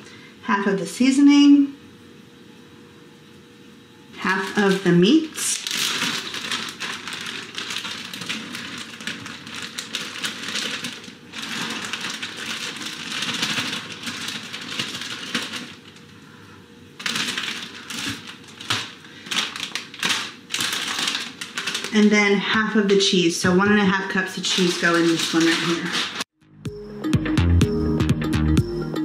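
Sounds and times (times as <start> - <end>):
plastic bag crinkling and rustling: 4.2 - 16.3, 17.0 - 26.4
small clicks and crackles: 5.5 - 16.1, 17.0 - 22.0.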